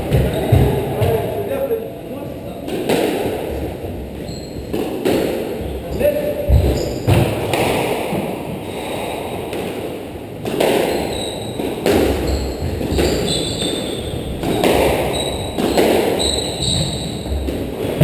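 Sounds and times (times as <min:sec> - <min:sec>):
shoes squeaking on wooden floor: 0:00.0 - 0:01.4, 0:04.1 - 0:07.4, 0:10.7 - 0:18.0.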